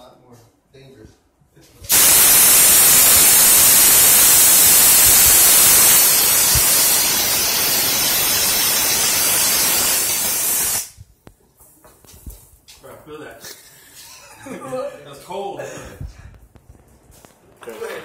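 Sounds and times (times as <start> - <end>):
refrigerant hissing from hose: 1.9 - 10.9.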